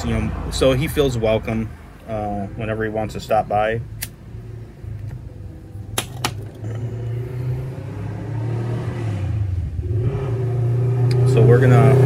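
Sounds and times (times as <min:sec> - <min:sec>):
steady low rumble: 0:00.0 - 0:08.6.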